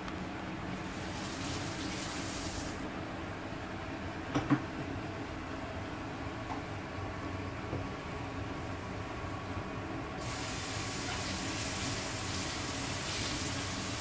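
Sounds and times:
low room hum: 0:00.0 - 0:14.0
high hiss: 0:10.2 - 0:14.0.

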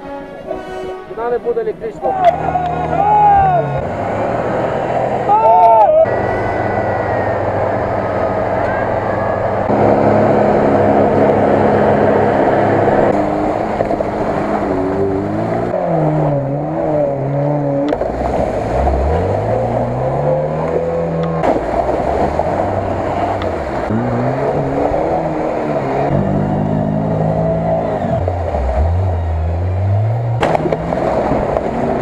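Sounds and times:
engine revving hard: 0:09.6 - 0:32.0
wheels spinning in mud: 0:17.9 - 0:32.0.

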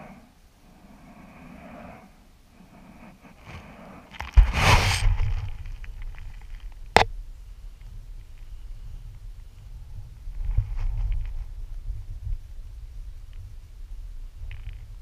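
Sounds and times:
sand scraping by hand: 0:01.2 - 0:05.2.

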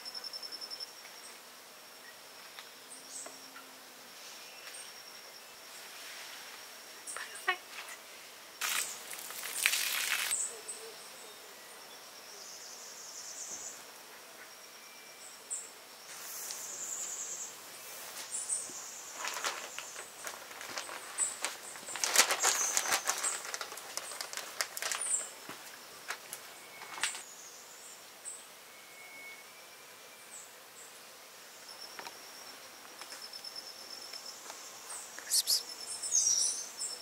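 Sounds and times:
high insect buzz: 0:00.0 - 0:37.0
bird chirps: 0:35.2 - 0:36.8.

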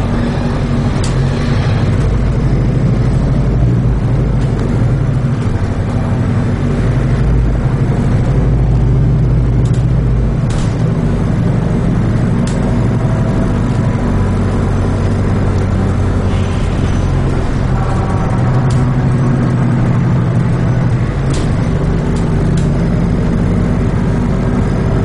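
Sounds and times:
bus engine drone: 0:00.0 - 0:25.0
road noise: 0:00.0 - 0:25.0.

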